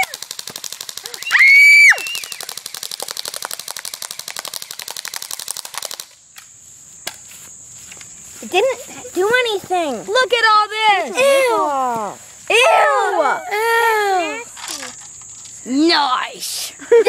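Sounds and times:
loud high-pitched yell: 0:12.5 - 0:14.5.

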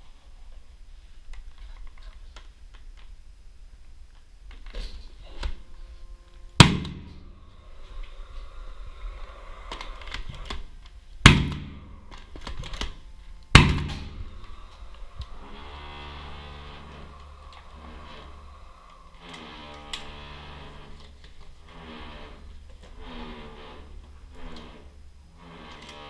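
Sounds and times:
nail gun shots: 0:06.6 - 0:07.1, 0:11.3 - 0:11.8, 0:13.6 - 0:14.1.

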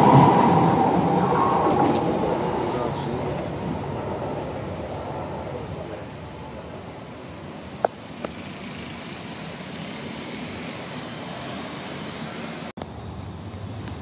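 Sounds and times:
train pulling away: 0:00.0 - 0:07.4
road traffic rumble: 0:00.0 - 0:14.0.

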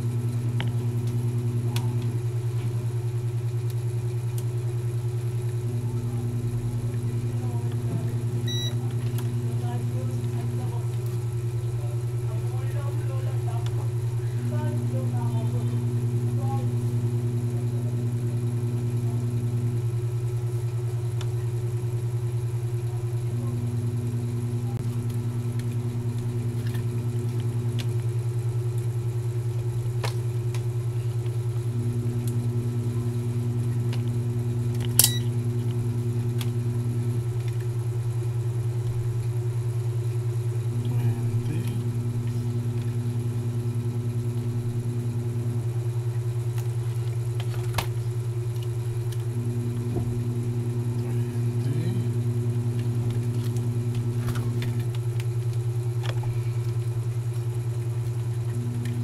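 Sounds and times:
low machine hum: 0:00.0 - 0:59.0
second machine tone: 0:08.4 - 0:09.1, 0:34.6 - 0:35.5
sharp click: 0:34.8 - 0:35.3.

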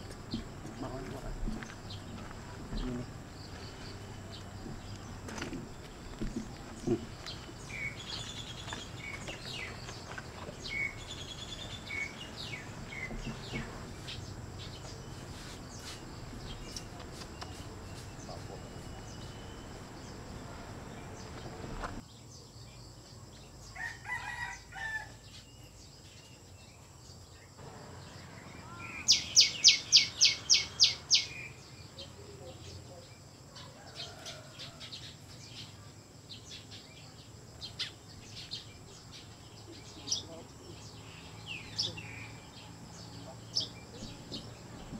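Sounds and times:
steady background noise: 0:00.0 - 0:22.1
bird chirps: 0:00.0 - 0:23.9, 0:24.9 - 0:44.9
loud sharp high bird calls: 0:28.4 - 0:31.7.

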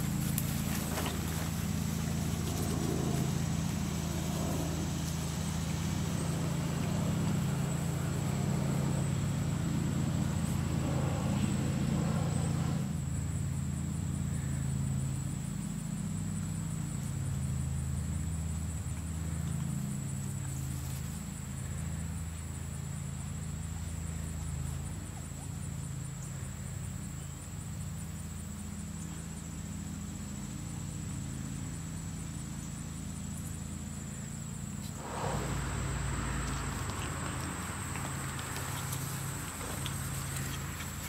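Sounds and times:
faint high whine: 0:29.0 - 0:41.0
hiss: 0:34.8 - 0:41.0.

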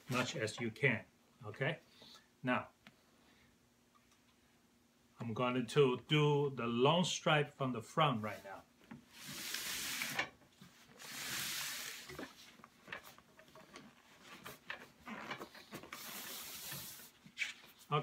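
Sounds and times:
material sliding and rubbing: 0:08.3 - 0:18.0.

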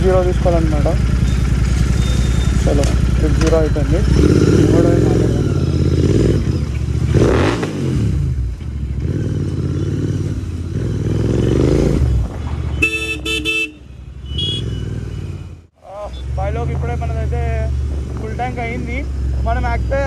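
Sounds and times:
motorcycle engine revving: 0:00.0 - 0:20.0
vehicle horn honking: 0:12.7 - 0:15.3.

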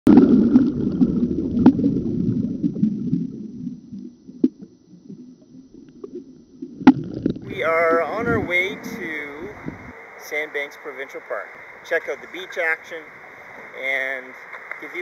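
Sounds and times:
underwater rumble of moving water: 0:00.1 - 0:15.0.

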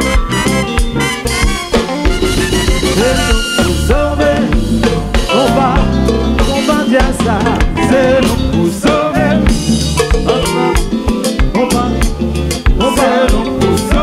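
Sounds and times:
live band playing: 0:00.0 - 0:14.0
man singing: 0:02.8 - 0:14.0.

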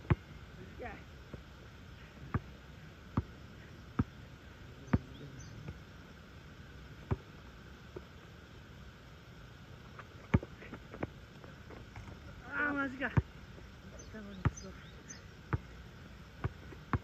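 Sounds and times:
basketball bouncing on asphalt: 0:00.0 - 0:00.3, 0:02.3 - 0:04.2, 0:07.0 - 0:08.1, 0:09.9 - 0:12.2, 0:13.0 - 0:14.8, 0:15.5 - 0:15.7, 0:16.4 - 0:17.0.

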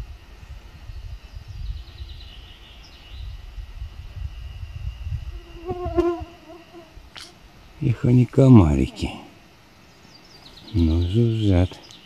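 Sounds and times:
mosquitoes buzzing: 0:05.2 - 0:07.4.

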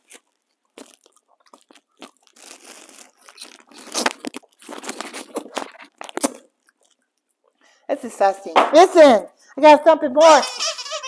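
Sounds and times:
hard candy crunching: 0:00.0 - 0:07.4
plastic wrapper crinkling: 0:00.0 - 0:07.6.

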